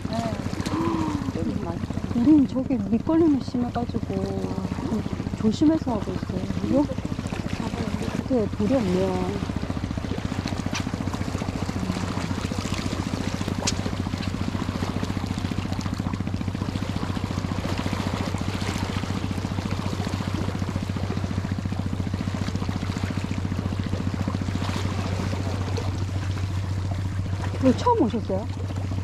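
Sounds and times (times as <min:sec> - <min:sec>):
constant low hum: 0:00.0 - 0:29.0
seawater gushing against rocks: 0:00.0 - 0:29.0.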